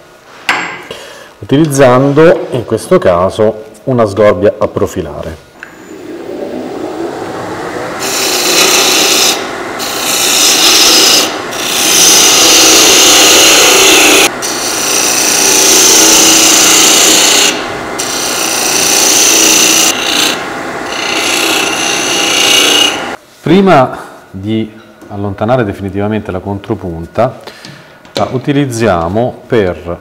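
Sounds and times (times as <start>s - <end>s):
wood lathe running: 5.7s - 23.2s
gouge scraping spinning wood: 7.3s - 23.2s.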